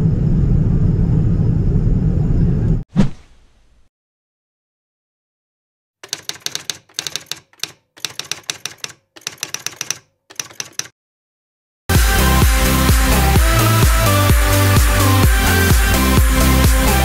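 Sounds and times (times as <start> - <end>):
typewriter keys clacking: 6.0 - 11.0.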